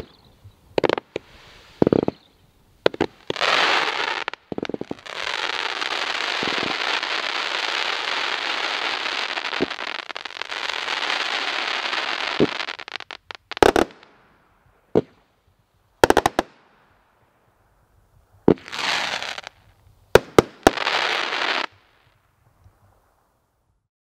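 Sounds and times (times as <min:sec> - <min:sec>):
dense fireworks crackling: 0:00.0 - 0:15.3, 0:16.0 - 0:17.1, 0:18.3 - 0:23.4.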